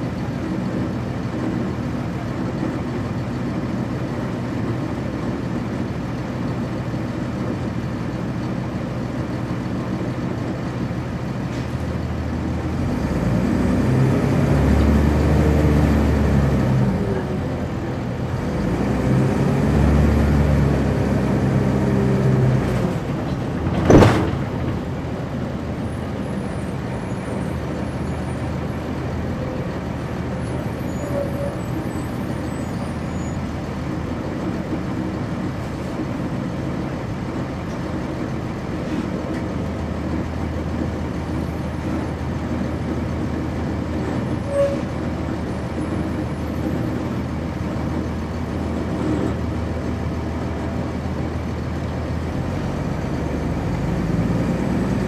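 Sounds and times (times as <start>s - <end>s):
bus diesel engine: 0.0s - 55.0s
road and cabin noise: 0.0s - 55.0s.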